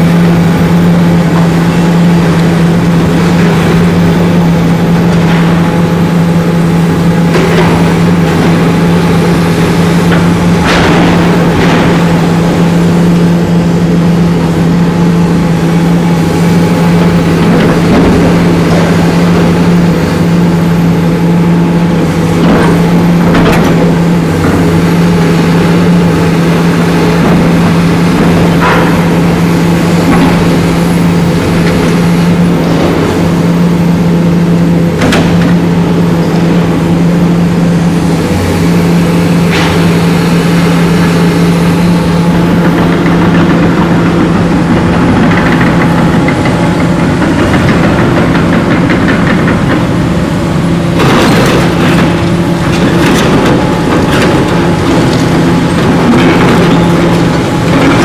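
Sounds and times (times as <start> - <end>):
excavator diesel engine: 0.0 - 58.0
metallic clanks and crunches: 9.9 - 14.0, 26.6 - 36.7, 50.9 - 58.0.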